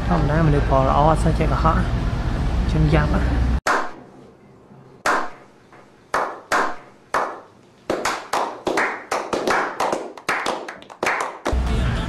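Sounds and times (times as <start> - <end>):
people slow-clapping: 6.1 - 11.6.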